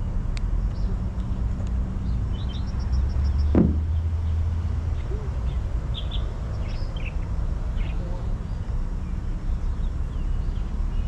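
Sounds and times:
steady low rumble: 0.0 - 9.8
birds chirping: 0.6 - 11.0
thump: 3.5 - 4.0.

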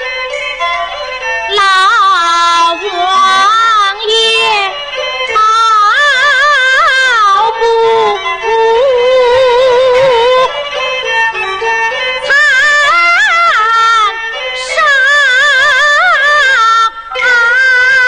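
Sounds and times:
woman singing opera: 1.6 - 4.8, 5.4 - 10.5, 12.3 - 16.6, 17.2 - 18.0.

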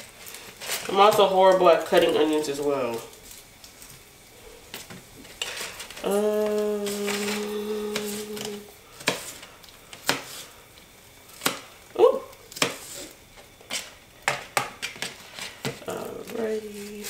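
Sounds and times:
steady hummed note: 4.0 - 12.6
knife cutting onion: 12.5 - 13.9.

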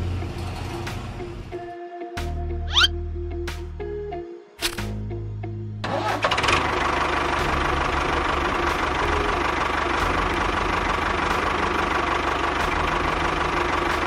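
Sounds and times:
tractor engine idling: 5.9 - 14.0.

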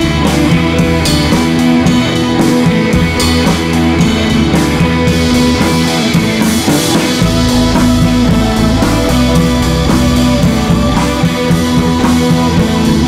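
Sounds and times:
guitar: 0.0 - 13.0
heavy bass: 0.0 - 13.0
steady drum beat: 0.0 - 13.0.

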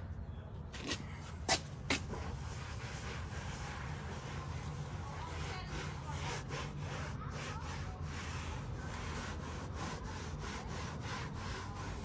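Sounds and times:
towel rubbing on plastic panel: 2.5 - 12.0.

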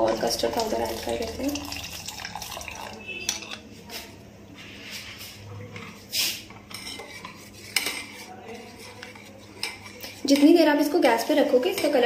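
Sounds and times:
spoon stirring in steel saucepan: 0.0 - 4.1, 4.8 - 12.0
spoon scraping ceramic bowl: 3.0 - 3.7, 5.8 - 10.6.

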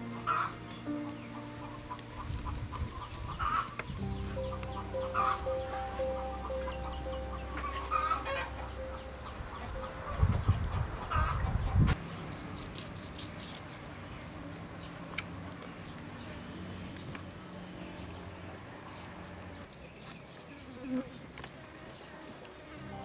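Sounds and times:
steady low drone: 0.0 - 11.6, 22.8 - 23.0
chickens clucking: 0.0 - 12.0.

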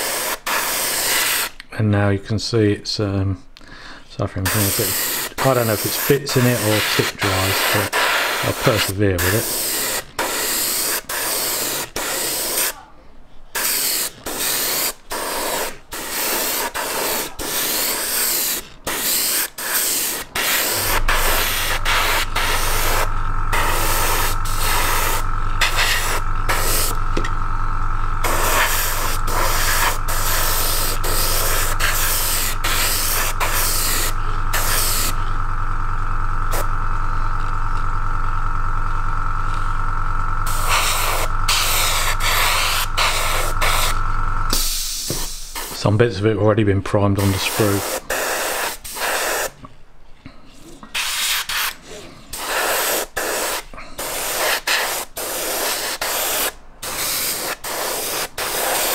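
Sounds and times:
airbrush spraying hiss: 0.0 - 1.6, 4.5 - 12.8, 13.5 - 27.2, 28.2 - 35.3, 36.5 - 36.7, 40.4 - 45.9, 47.2 - 49.6, 50.9 - 58.9
low motor hum: 20.7 - 44.5.

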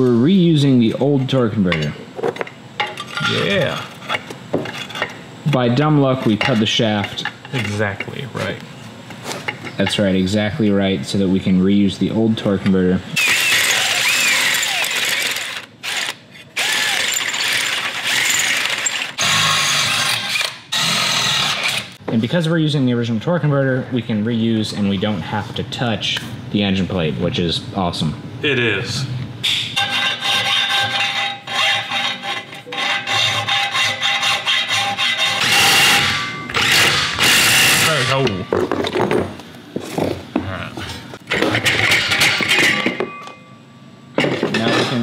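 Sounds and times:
cordless drill whirring and ratcheting: 13.2 - 22.0
drill boring into steel: 13.2 - 22.0
hand tool scraping steel plate: 29.8 - 38.2.

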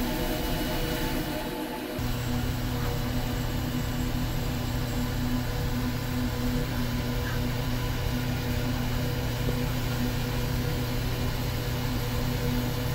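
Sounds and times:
sawmill machinery humming: 0.0 - 12.9.

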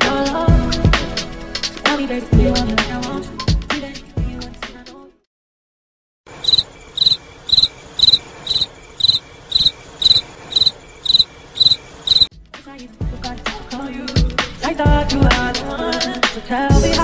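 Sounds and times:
cricket chirping: 6.3 - 12.3.

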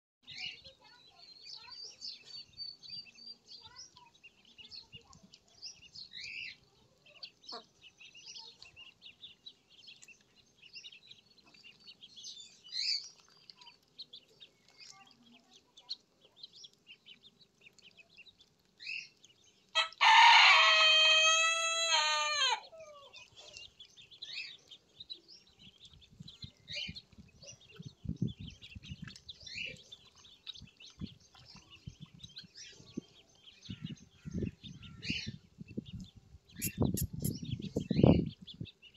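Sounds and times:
ducklings peeping: 0.3 - 38.9
rooster crowing: 19.8 - 22.7.

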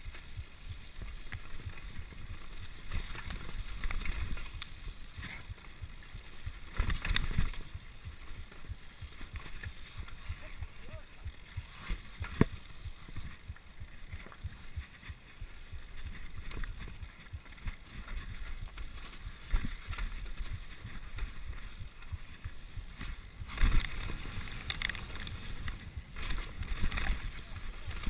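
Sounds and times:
mountain bike rattling: 0.0 - 28.0.

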